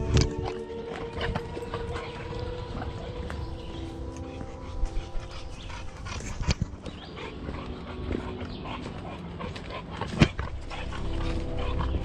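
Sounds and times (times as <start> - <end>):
dog: 0.0 - 12.0
walking and rustling: 0.0 - 12.0.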